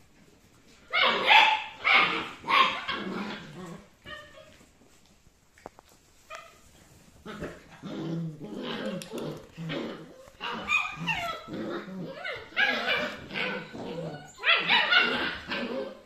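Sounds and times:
puppies yapping: 0:00.8 - 0:04.6, 0:08.6 - 0:16.0
puppies growling: 0:00.9 - 0:04.6, 0:07.2 - 0:16.0.

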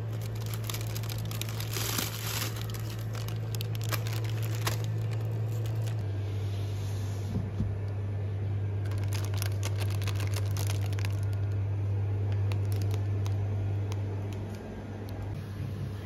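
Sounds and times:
plastic wrappers crinkling: 0:00.0 - 0:06.0, 0:08.8 - 0:11.6, 0:12.3 - 0:14.7
steady low hum: 0:00.0 - 0:16.0.

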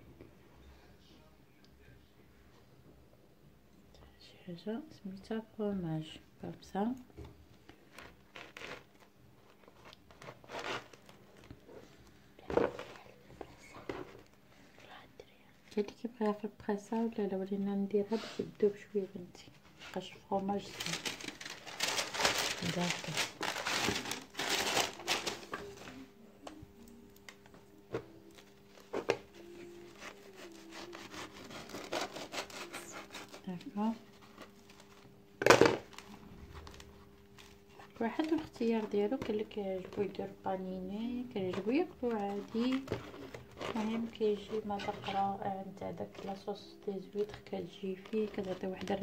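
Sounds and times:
bread crust crackling: 0:07.6 - 0:11.7, 0:19.7 - 0:25.8, 0:28.3 - 0:40.4, 0:41.1 - 0:49.0
knife scraping toast on plastic tray: 0:07.9 - 0:08.9, 0:09.7 - 0:11.1, 0:29.9 - 0:33.5.

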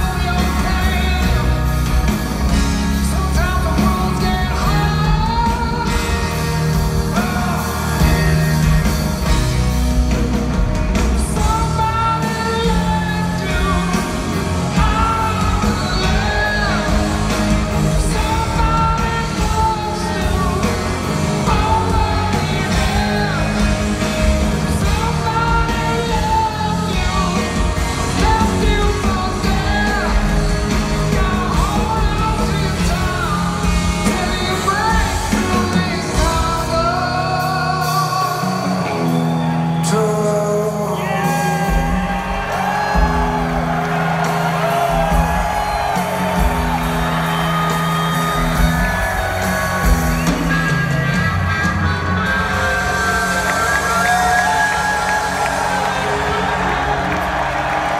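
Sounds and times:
man singing: 0:00.0 - 0:09.6, 0:11.0 - 0:46.0
live rock band playing: 0:00.0 - 0:57.9.

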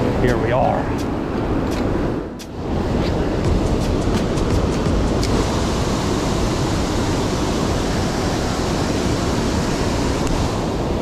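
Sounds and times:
water pouring over dam spillway: 0:05.2 - 0:11.0.

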